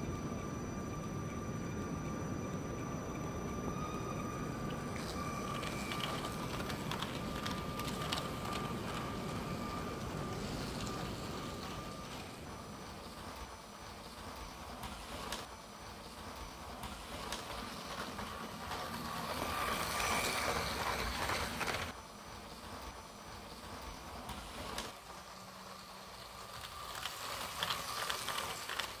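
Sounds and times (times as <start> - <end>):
electric motor whine: 0.0 - 15.6, 16.2 - 29.0
wheels clicking: 0.0 - 25.1, 26.0 - 29.0
toy train wheels rattling: 5.0 - 12.4, 14.2 - 22.0, 26.0 - 29.0.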